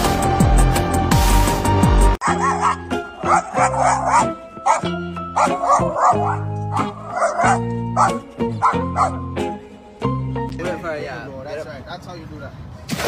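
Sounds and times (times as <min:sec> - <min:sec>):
background music with held notes: 0:00.0 - 0:11.6
dog barking and yipping: 0:02.2 - 0:09.3.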